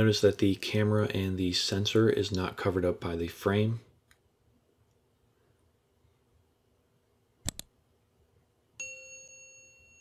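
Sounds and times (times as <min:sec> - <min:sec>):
mouse clicks: 0:07.4 - 0:07.7
bright bell chime: 0:08.8 - 0:10.0.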